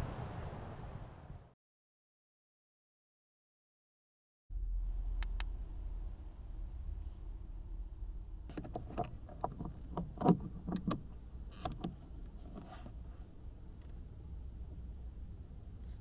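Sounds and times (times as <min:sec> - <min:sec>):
low steady rumble: 0:04.5 - 0:16.0.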